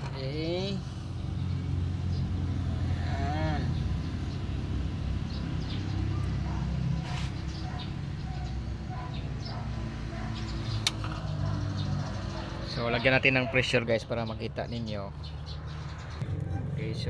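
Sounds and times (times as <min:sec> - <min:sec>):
sharp click: 0:10.8 - 0:11.2.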